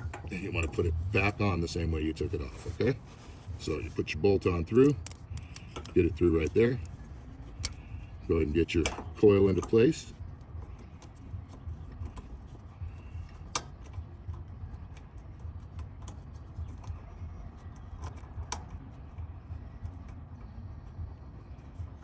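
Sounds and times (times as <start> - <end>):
low steady rumble: 0.0 - 22.0
metal parts clicking and tapping: 4.8 - 6.9, 8.7 - 9.9.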